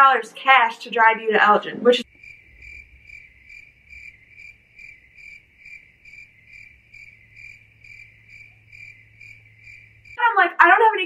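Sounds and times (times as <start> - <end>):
crickets chirping: 2.0 - 10.2
faint steady hum: 2.0 - 11.0.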